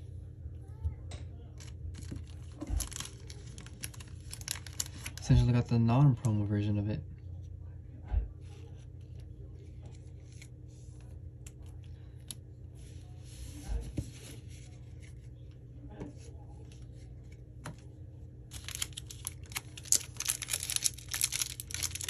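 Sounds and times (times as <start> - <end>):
foil wrapper crinkling: 1.6 - 5.4, 18.5 - 22.0.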